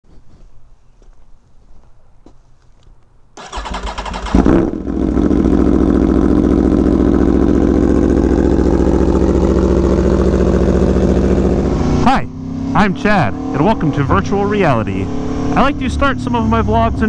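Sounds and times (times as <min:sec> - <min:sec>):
electric starter cranking: 0:03.4 - 0:04.7
motorcycle engine revving and idling: 0:03.4 - 0:17.0.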